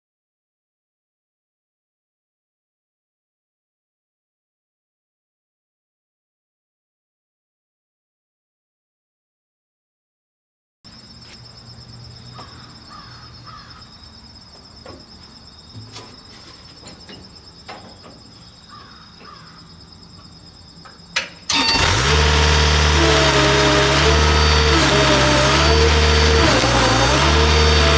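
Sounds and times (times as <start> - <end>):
faint bird calls: 12.3 - 14.0, 17.8 - 19.8
loader engine starting and running: 21.5 - 27.9.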